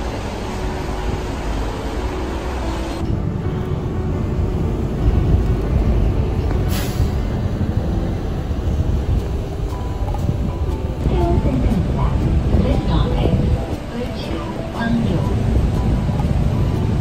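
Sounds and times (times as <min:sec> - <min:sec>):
bus engine and road rumble: 0:00.0 - 0:17.0
brief hiss: 0:06.6 - 0:07.3.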